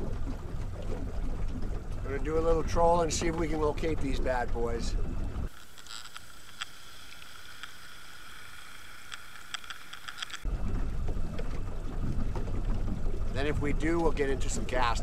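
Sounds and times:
outboard motor rumbling: 0.0s - 15.0s
underwater propeller whine: 0.0s - 15.0s
wind: 0.0s - 15.0s
sharp underwater clicks: 5.5s - 10.5s.

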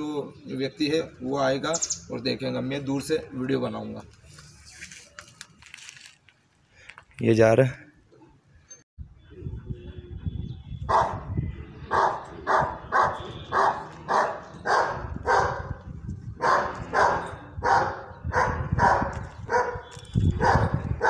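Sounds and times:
dog barking: 10.9s - 11.2s, 11.9s - 15.8s, 16.4s - 19.8s, 20.4s - 20.8s.

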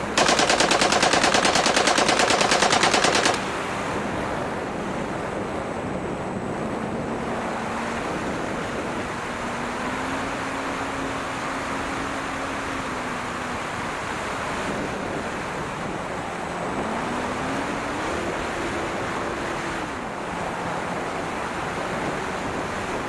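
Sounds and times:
simulated machine-gun fire: 0.0s - 3.7s.

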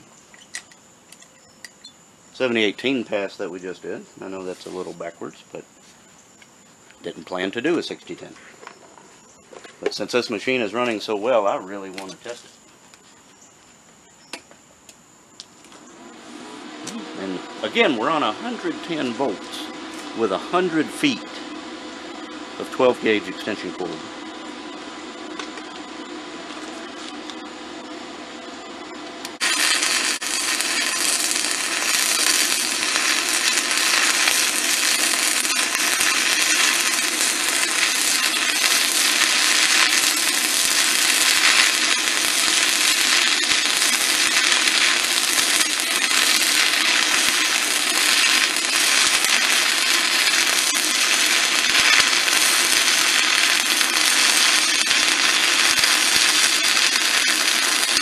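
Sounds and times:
low steady hum: 14.0s - 57.8s
welding arc crackling: 14.4s - 58.0s.

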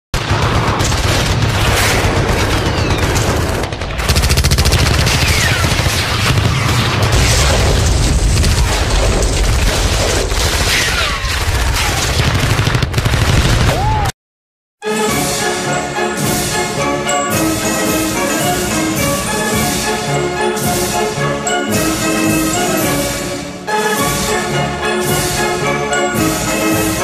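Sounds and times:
rifle and machine-gun fire: 0.2s - 13.9s
explosions: 0.2s - 14.1s.

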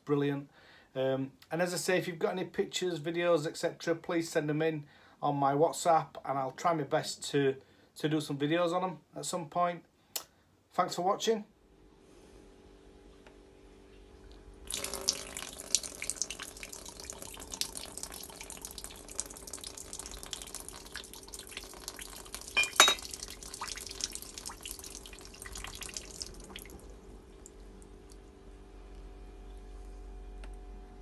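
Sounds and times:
water pouring and splashing: 14.7s - 28.2s.

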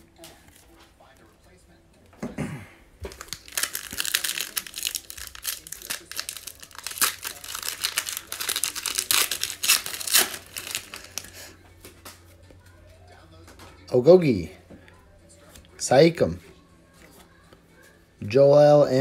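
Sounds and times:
foil wrapper tearing and crinkling: 3.1s - 11.4s.

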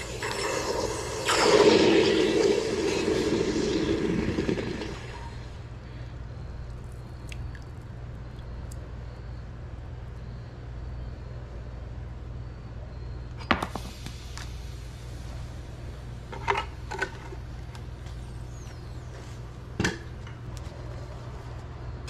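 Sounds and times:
hot metal hissing in water: 0.0s - 5.6s.

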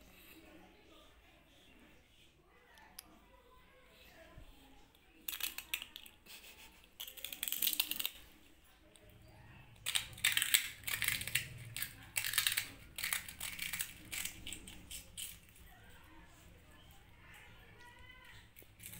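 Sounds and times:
kittens crunching snack: 5.2s - 15.9s, 18.3s - 18.9s.

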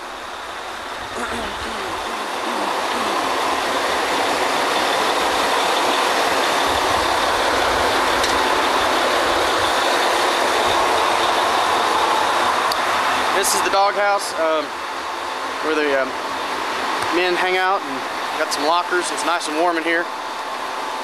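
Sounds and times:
diesel engines running: 0.0s - 21.0s.

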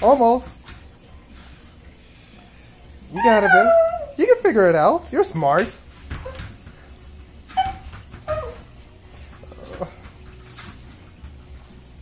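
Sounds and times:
small dog whimpering: 3.1s - 4.2s, 7.6s - 8.7s.

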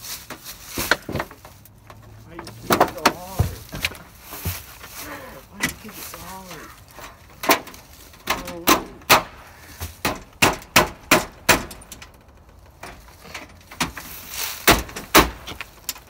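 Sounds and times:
fists banging on door: 8.3s - 11.8s, 14.7s - 15.4s.

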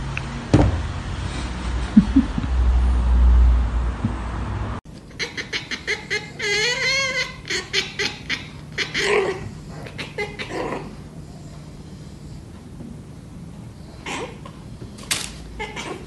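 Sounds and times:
cat yowling: 5.2s - 10.9s.

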